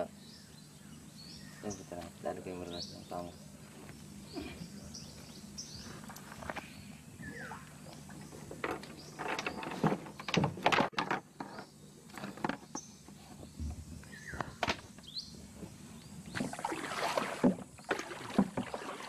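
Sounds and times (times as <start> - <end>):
bird chirps: 4.2 - 10.4, 12.7 - 16.5.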